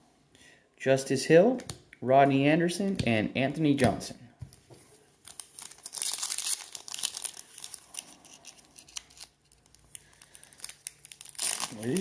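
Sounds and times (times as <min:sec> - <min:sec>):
wrapper tearing and crinkling: 0:05.2 - 0:12.0.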